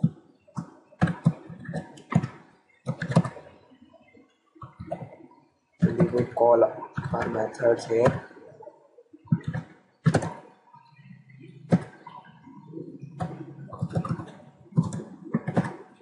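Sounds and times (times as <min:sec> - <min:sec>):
keystrokes on computer keyboard: 0:13.2 - 0:15.8.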